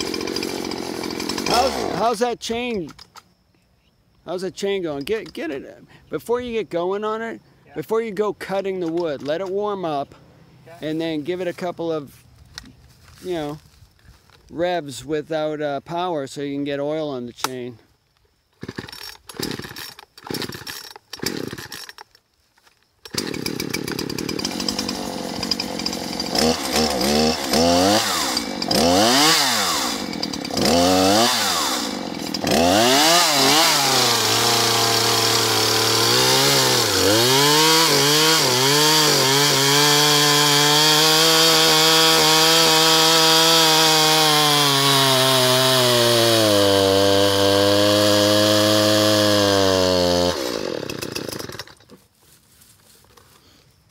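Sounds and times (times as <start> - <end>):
chainsaw engine revving: 0.0 - 2.2, 18.6 - 22.0, 23.0 - 51.9
chainsaw starter pulls: 0.0 - 3.2, 18.6 - 22.2, 23.0 - 52.0.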